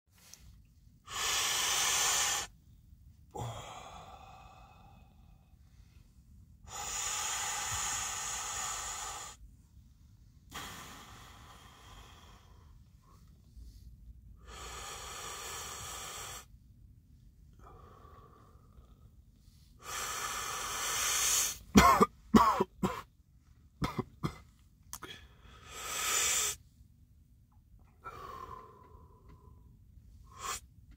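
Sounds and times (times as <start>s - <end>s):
smoker inhaling and exhaling: 1.1s - 2.5s, 19.8s - 21.6s, 25.6s - 26.6s, 30.2s - 30.7s
person coughing: 21.8s - 23.1s, 23.8s - 25.1s.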